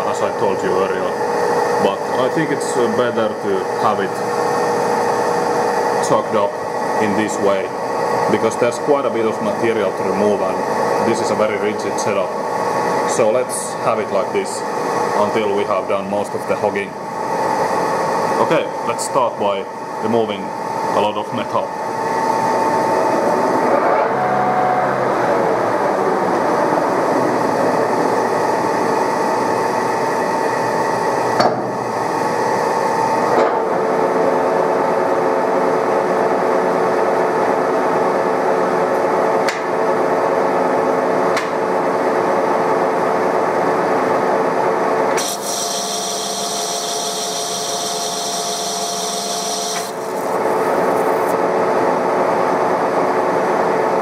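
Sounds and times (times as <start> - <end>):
metal lathe cutting metal: 45.2 - 51.4.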